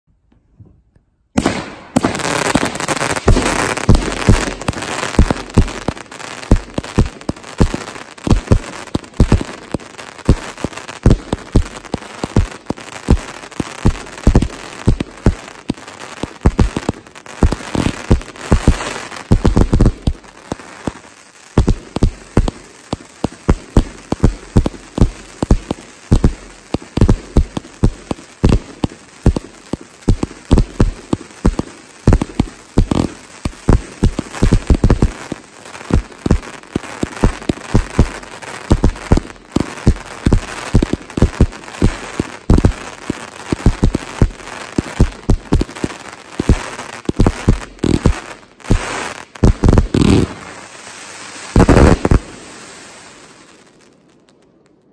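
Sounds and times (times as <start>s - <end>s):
fireworks shots and bursts: 1.3s - 53.8s
fireworks crackle: 1.3s - 54.9s.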